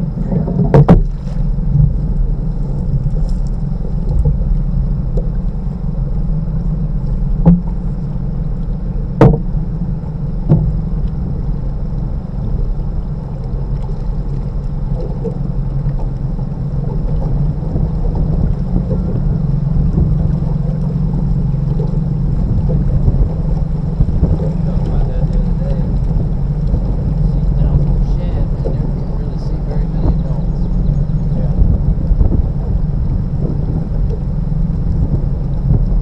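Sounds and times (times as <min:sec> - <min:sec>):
boat motor drone: 0:00.0 - 0:36.0
sharp knocks: 0:09.2 - 0:09.5, 0:10.5 - 0:10.8.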